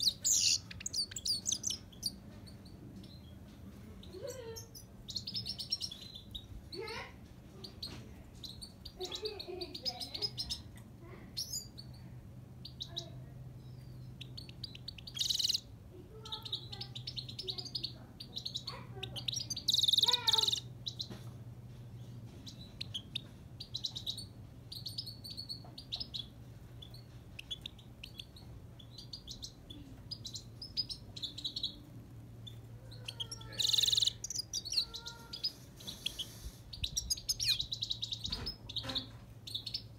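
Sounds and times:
goldfinch twittering and trilling: 0:00.0 - 0:02.2, 0:33.1 - 0:39.9
faint low hum: 0:00.0 - 0:39.9.

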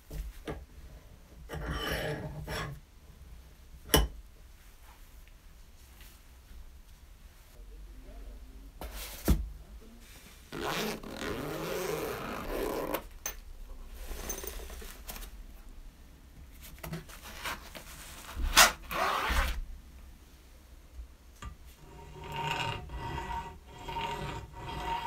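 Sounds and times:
zipper being unzipped: 0:10.5 - 0:13.1, 0:18.5 - 0:19.6.

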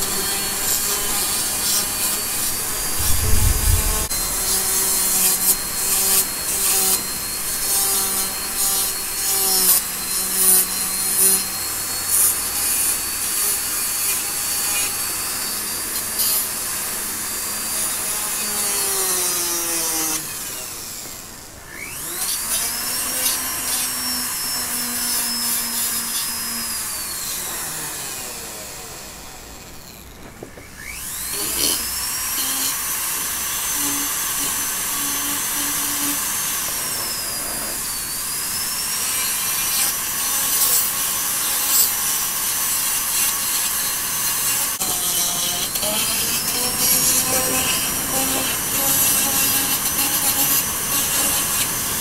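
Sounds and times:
rotary carver motor whine: 0:00.0 - 0:52.0
bit rasping on wood: 0:30.9 - 0:52.0.

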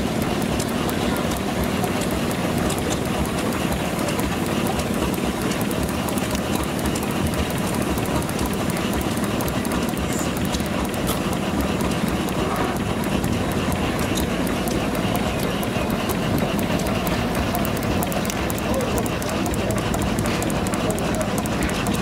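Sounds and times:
faint regular beat: 0:00.0 - 0:22.0
machine running: 0:00.0 - 0:22.0.

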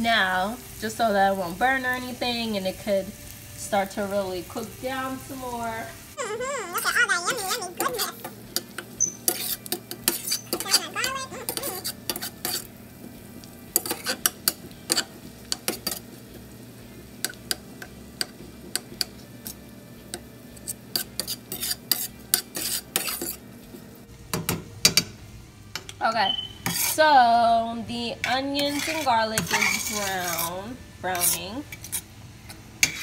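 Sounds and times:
food sizzling lightly: 0:00.0 - 0:33.0
metal spoon scraping a skillet: 0:06.8 - 0:12.8, 0:13.7 - 0:16.2, 0:17.2 - 0:23.5, 0:26.5 - 0:27.2, 0:28.2 - 0:33.0.

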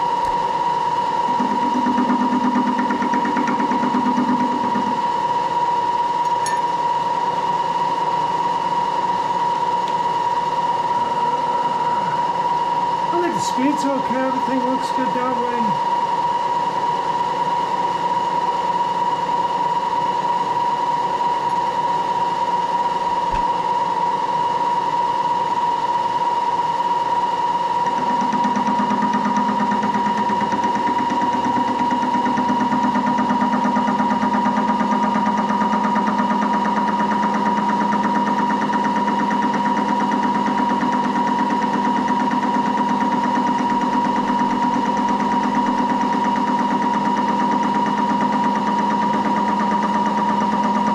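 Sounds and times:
lower hum: 0:00.0 - 0:16.3, 0:21.3 - 0:24.3
machine spindle whine: 0:00.0 - 0:50.9.

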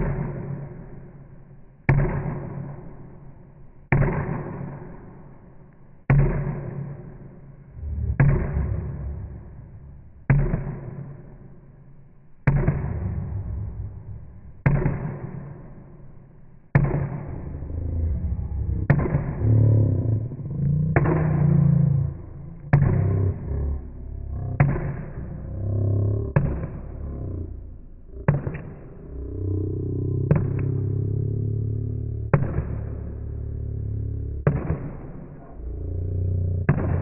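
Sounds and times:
deep hits: 0:07.6 - 0:11.5, 0:12.4 - 0:37.0.

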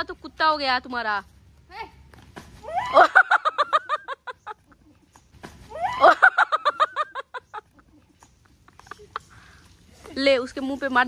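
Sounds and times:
high-pitched laughter: 0:02.7 - 0:05.1, 0:05.7 - 0:09.4.

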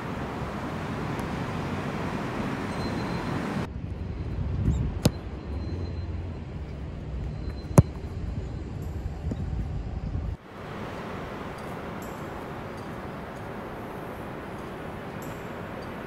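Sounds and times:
distant traffic: 0:00.0 - 0:16.0
wind: 0:00.0 - 0:16.0
boot kicking football: 0:07.5 - 0:08.2.

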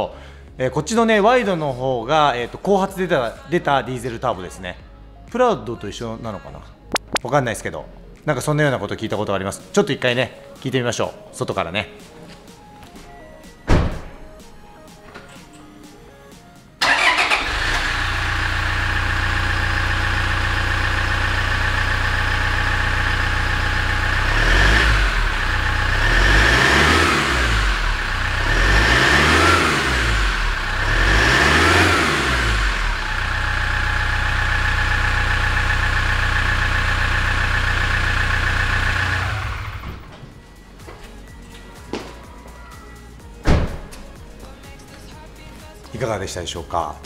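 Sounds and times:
engine revving: 0:16.8 - 0:40.1
diesel engine starting and idling: 0:16.8 - 0:40.3.

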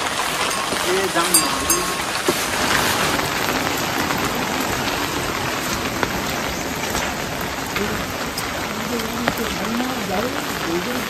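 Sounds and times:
raindrops ticking close by: 0:00.0 - 0:11.0
steady rain falling: 0:00.0 - 0:11.0.

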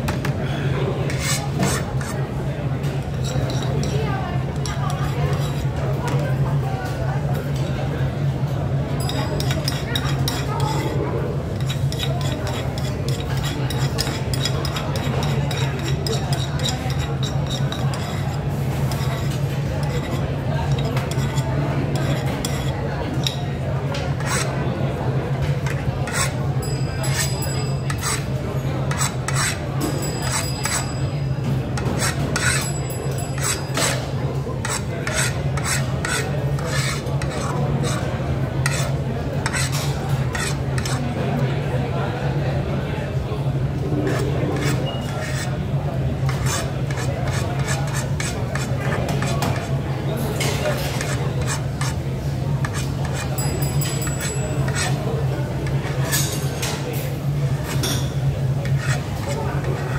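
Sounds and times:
rasping scraping strokes: 0:01.1 - 0:02.2, 0:24.1 - 0:24.5, 0:25.6 - 0:28.3, 0:28.9 - 0:31.0, 0:31.8 - 0:41.1, 0:44.0 - 0:45.5, 0:46.2 - 0:49.8, 0:50.4 - 0:52.0, 0:52.6 - 0:55.0, 0:58.6 - 0:59.9
cutlery and glass clinking: 0:09.0 - 0:11.0, 0:25.7 - 0:28.3, 0:28.9 - 0:38.9, 0:52.6 - 0:59.9.

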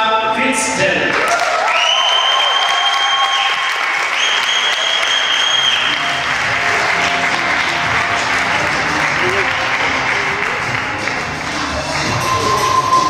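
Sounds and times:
audience applauding: 0:01.1 - 0:13.0
shrill high-pitched calls: 0:01.9 - 0:06.3.

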